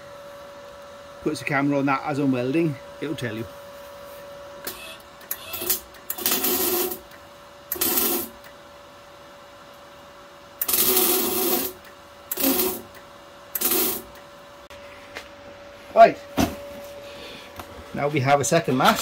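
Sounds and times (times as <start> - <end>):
welding arc crackling: 4.7 - 8.6, 10.6 - 14.3.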